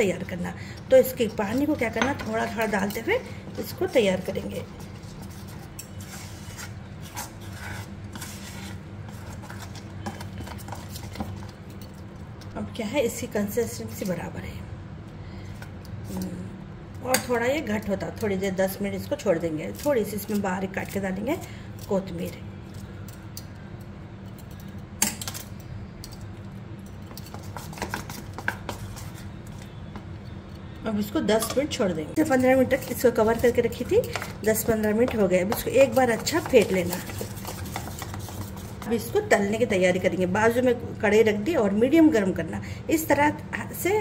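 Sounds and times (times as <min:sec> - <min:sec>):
spoon stirring batter in metal pot: 0:27.1 - 0:30.1, 0:32.2 - 0:39.0.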